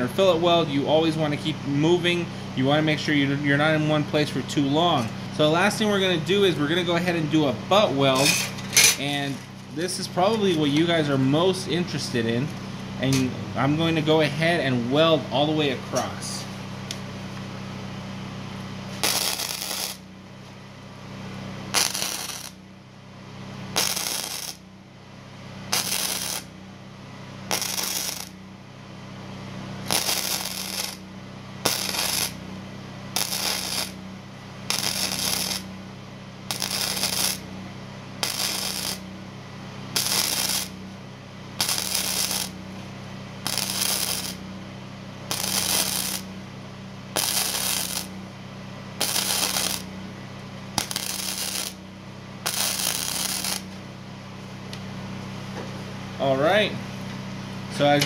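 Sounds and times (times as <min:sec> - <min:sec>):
steady low hum: 0:00.0 - 0:58.0
welder crackling: 0:18.9 - 0:20.1, 0:21.7 - 0:22.6, 0:23.6 - 0:24.6, 0:25.7 - 0:26.6, 0:27.4 - 0:28.4, 0:29.8 - 0:32.4, 0:33.1 - 0:35.8, 0:36.4 - 0:37.5, 0:38.2 - 0:39.1, 0:39.9 - 0:40.9, 0:41.5 - 0:42.6, 0:43.4 - 0:44.5, 0:45.2 - 0:46.4, 0:47.1 - 0:48.2, 0:49.0 - 0:50.0, 0:50.7 - 0:51.8, 0:52.4 - 0:53.8.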